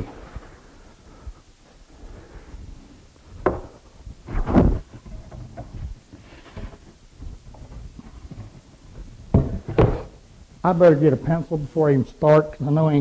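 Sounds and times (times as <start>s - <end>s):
wooden boards knocking: 3.4s - 3.7s, 9.3s - 10.1s
board bumping on workbench: 3.4s - 3.8s, 9.3s - 10.2s.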